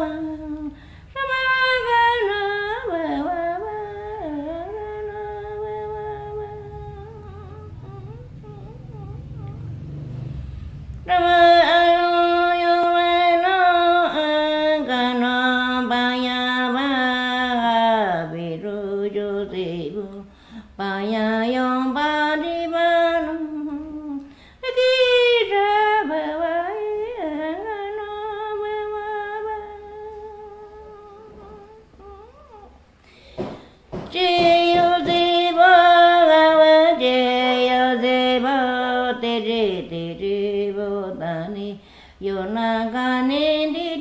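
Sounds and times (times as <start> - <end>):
woman humming a slow melody: 2.0 - 9.9, 27.0 - 32.9.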